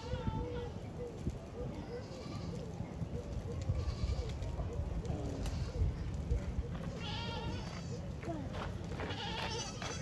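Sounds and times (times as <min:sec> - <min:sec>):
wind rumbling on microphone: 0:00.0 - 0:10.0
goats bleating: 0:07.0 - 0:07.9, 0:09.1 - 0:10.0.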